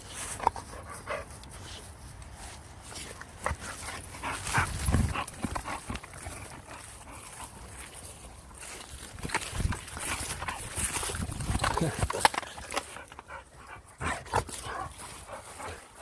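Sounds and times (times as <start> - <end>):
rustles and bumps: 0.0 - 16.0
dog breathing hard: 3.3 - 8.2, 12.6 - 16.0.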